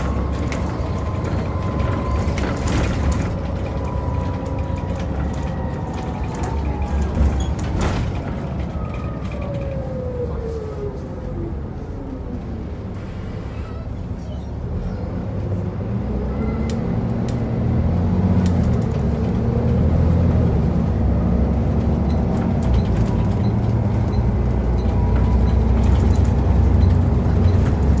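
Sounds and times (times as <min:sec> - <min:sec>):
bus diesel engine running: 0:00.0 - 0:28.0
bus interior clicks and rattles: 0:00.0 - 0:28.0.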